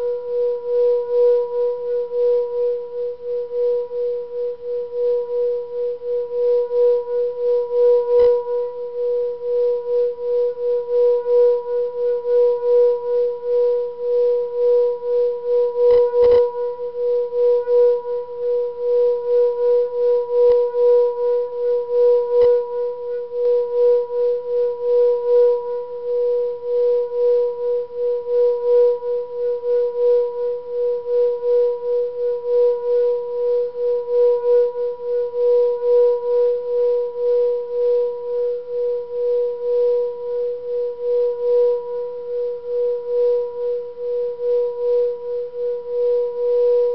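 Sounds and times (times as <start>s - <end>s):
singing bowl ringing tone: 0.0s - 46.9s.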